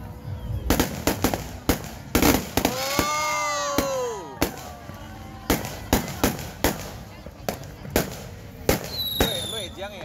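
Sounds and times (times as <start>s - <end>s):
fireworks bangs: 0.6s - 10.0s
firework whistle: 8.8s - 9.8s.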